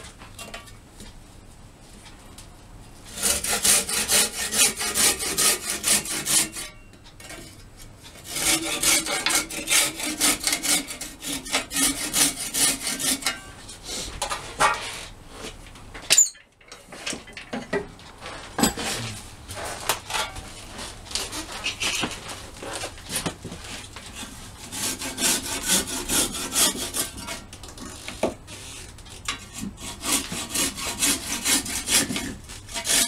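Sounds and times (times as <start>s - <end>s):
handsaw sawing wood: 3.1s - 6.7s, 8.2s - 13.3s, 24.2s - 27.4s, 29.4s - 33.0s
scrapes and knocks: 14.2s - 24.3s.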